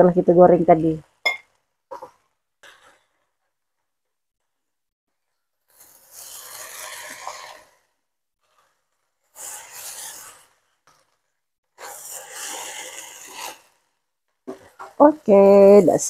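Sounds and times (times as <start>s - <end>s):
spatula scraping noodles in pan: 1.9s - 3.3s, 5.6s - 15.7s
sizzling: 5.5s - 16.0s.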